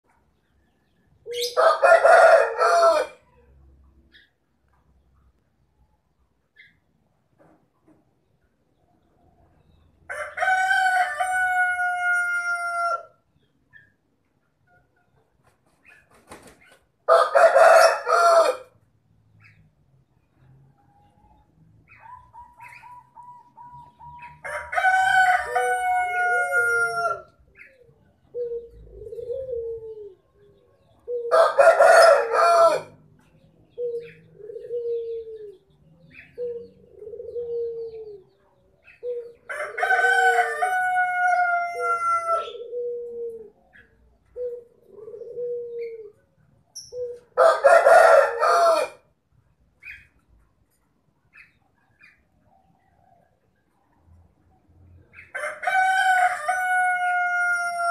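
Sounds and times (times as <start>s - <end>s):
rooster crowing: 1.5s - 3.4s, 10.1s - 13.2s, 17.1s - 18.7s, 24.4s - 27.3s, 31.3s - 33.0s, 39.5s - 42.6s, 47.4s - 49.0s, 55.3s - 57.9s.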